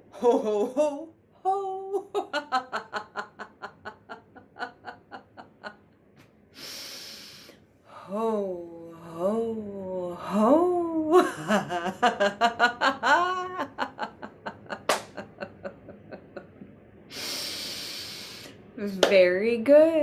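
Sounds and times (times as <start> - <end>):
woman laughing heartily: 0.1 - 5.9, 10.8 - 16.6
breathy hiss of breath: 6.5 - 8.0, 17.1 - 18.6.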